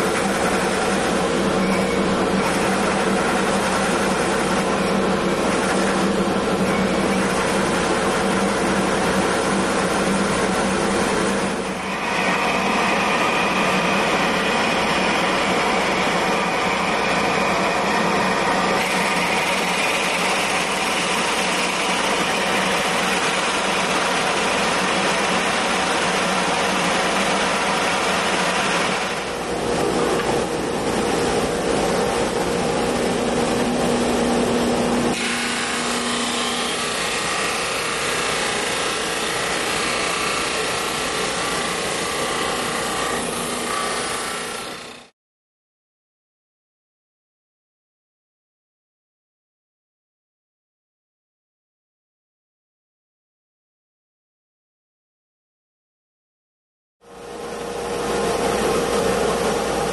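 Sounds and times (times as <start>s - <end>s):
drill press cutting wood: 0.0s - 32.1s, 32.9s - 45.1s
dust collector rushing: 0.0s - 44.9s
drum sander running: 0.0s - 45.1s.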